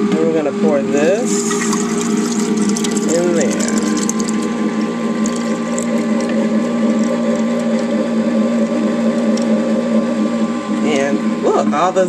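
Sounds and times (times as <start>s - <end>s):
ice cream maker motor humming: 0.0s - 12.0s
liquid being poured: 1.2s - 9.9s.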